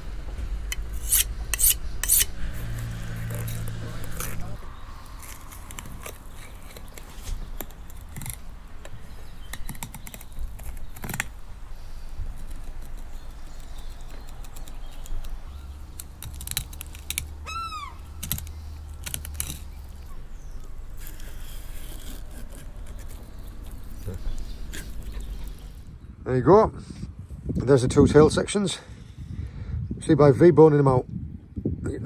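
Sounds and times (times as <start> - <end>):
gull call: 17.4 - 18.0.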